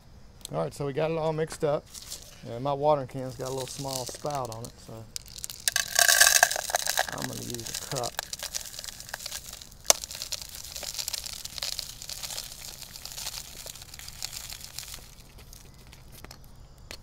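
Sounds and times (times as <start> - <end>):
plastic bag crinkling: 3.4 - 16.3.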